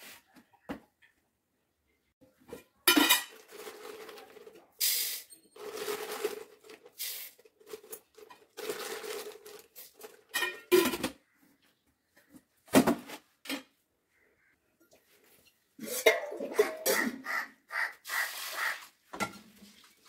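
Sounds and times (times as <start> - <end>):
lentils rattling in metal pot: 2.9 - 10.4
plastic bag rustling: 3.3 - 4.7, 5.6 - 10.3.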